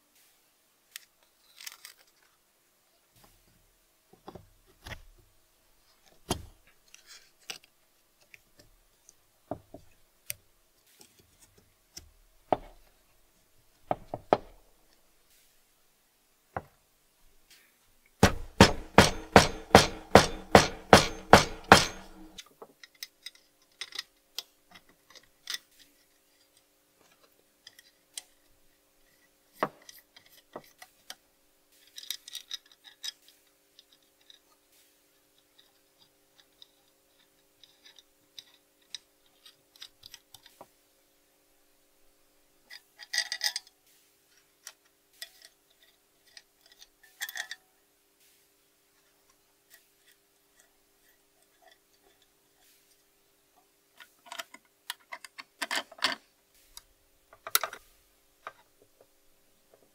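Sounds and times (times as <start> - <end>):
small metal parts clicking: 0.9 - 2.3, 18.2 - 28.5, 31.8 - 34.6, 35.4 - 40.6, 42.7 - 43.8, 44.6 - 47.6, 54.0 - 56.2
ringing metal knocks: 18.2 - 22.4.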